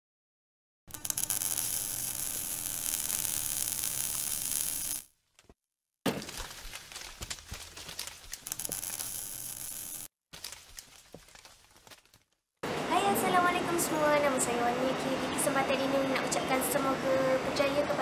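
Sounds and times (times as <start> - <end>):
crackling hiss: 0.9 - 5.1, 8.4 - 10.1
crackles and clicks: 0.9 - 5.5, 6.1 - 12.4.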